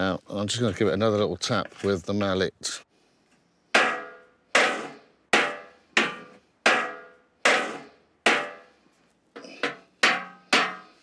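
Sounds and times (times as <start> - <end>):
mallet striking metal grille: 3.8 - 8.7, 10.0 - 11.0.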